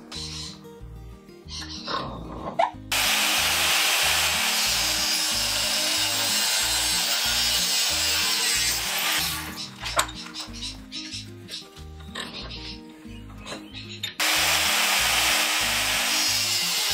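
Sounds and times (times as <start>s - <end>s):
angle grinder whine: 2.9s - 9.7s, 14.2s - 16.9s
grinder disc grinding steel: 2.9s - 10.2s, 14.2s - 16.9s.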